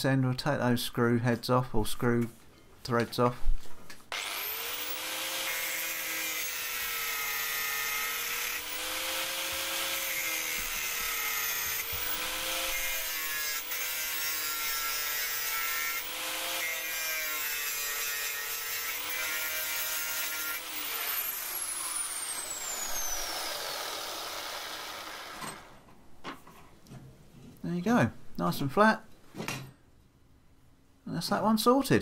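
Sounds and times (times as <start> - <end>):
angle grinder cutting metal: 4.1 - 25.8
grinder winding down: 4.1 - 25.8.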